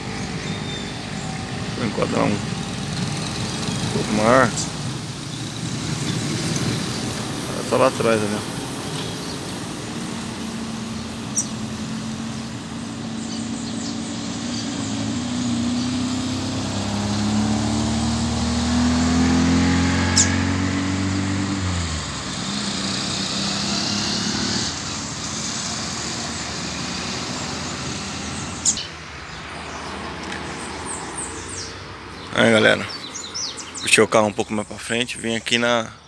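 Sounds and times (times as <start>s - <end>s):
vehicle passing: 0.0s - 36.0s.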